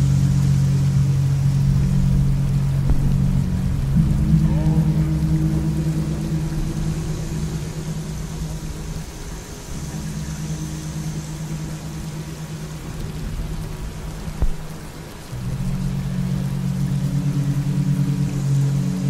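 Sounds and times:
low drone of held tones: 0.0s - 19.0s
rain-like hiss: 0.0s - 19.0s.

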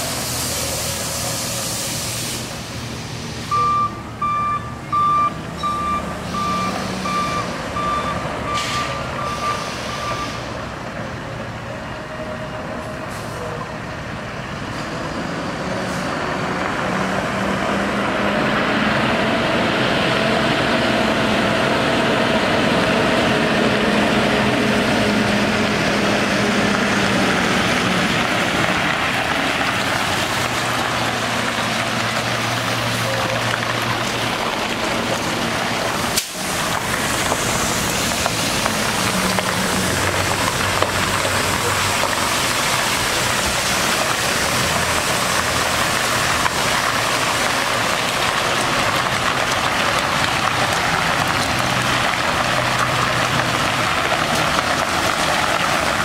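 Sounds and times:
water hissing from sprayers: 0.0s - 3.8s, 8.6s - 10.6s, 25.9s - 56.0s
diesel truck engine driving: 0.0s - 56.0s
backup alarm beeping: 3.5s - 10.4s.

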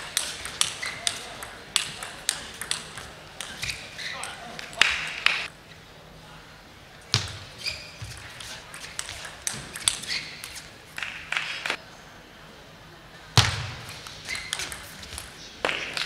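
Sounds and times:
table tennis ball clicking: 0.1s - 5.4s, 8.7s - 11.7s, 14.3s - 16.0s.

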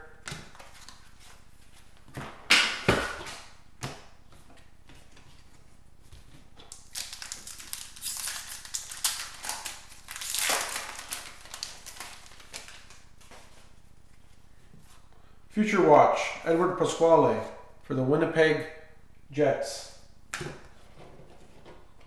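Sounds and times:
wrapper crinkling: 6.7s - 13.4s
cards rustling: 6.7s - 13.7s.

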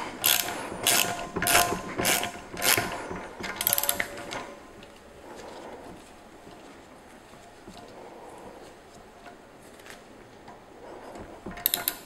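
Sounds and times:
ratcheting wrench clicking: 0.2s - 4.4s, 11.6s - 12.0s.

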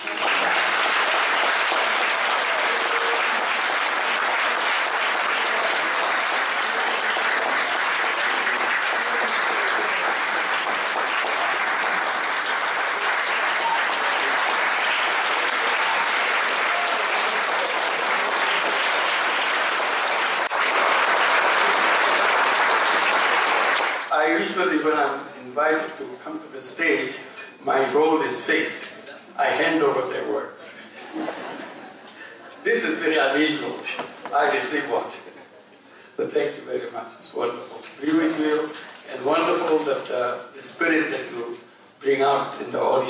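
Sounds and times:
audience applauding: 0.0s - 24.1s.

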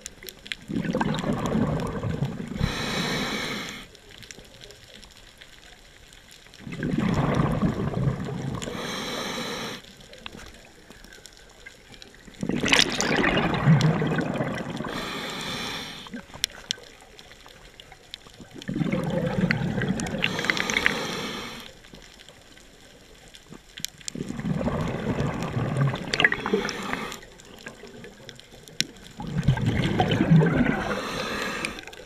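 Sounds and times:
bubbling exhaust: 0.7s - 3.8s, 6.6s - 9.8s, 12.4s - 16.3s, 18.6s - 21.6s, 24.1s - 27.2s, 29.2s - 31.8s
diver breathing through regulator: 2.4s - 4.0s, 8.5s - 9.9s, 13.4s - 16.3s, 19.8s - 21.8s, 26.1s - 27.3s, 30.4s - 32.0s.

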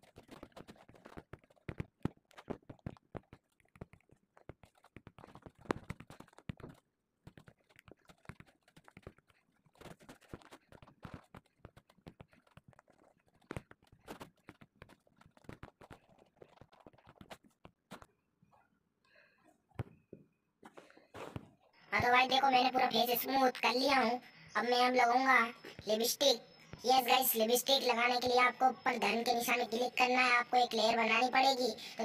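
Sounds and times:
fingers tapping a touchscreen: 0.0s - 18.1s.

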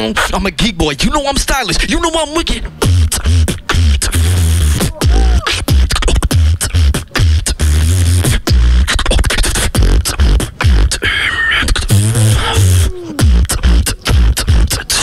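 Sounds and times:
amplified beatboxing: 0.0s - 15.0s.

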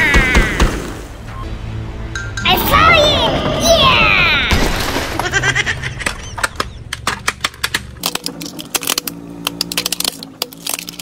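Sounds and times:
plastic toy cracking and snapping: 6.5s - 11.0s.

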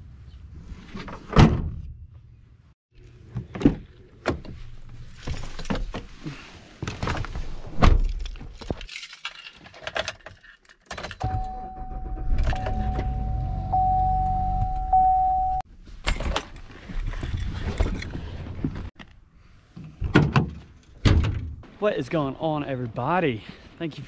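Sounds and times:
steady single tone: 11.3s - 15.6s.

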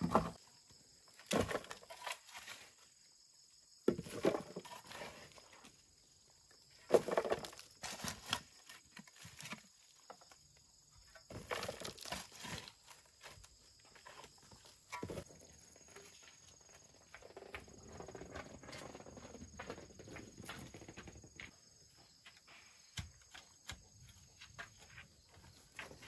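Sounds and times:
wheelbarrow rumbling: 0.0s - 0.4s, 3.9s - 5.5s, 6.8s - 9.2s, 14.9s - 21.4s.

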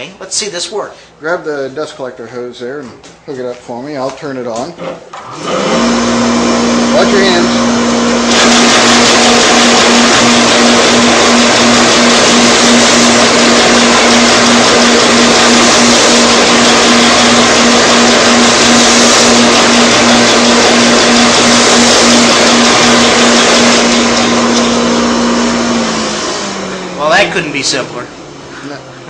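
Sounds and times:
belt sander motor hum: 5.2s - 27.8s.

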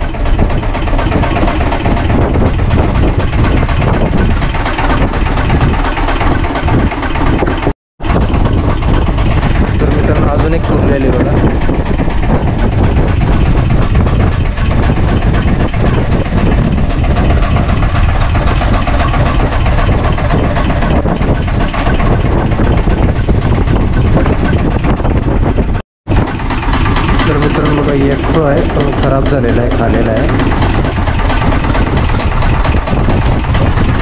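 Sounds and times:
wind buffeting microphone: 0.0s - 34.0s.

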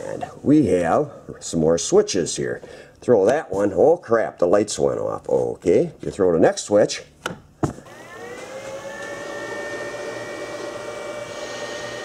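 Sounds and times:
power inverter whine: 7.8s - 12.0s.

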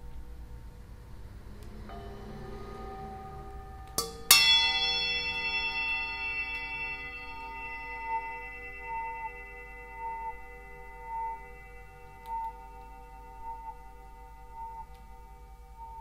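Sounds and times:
metal bell struck and ringing: 1.8s - 16.0s.

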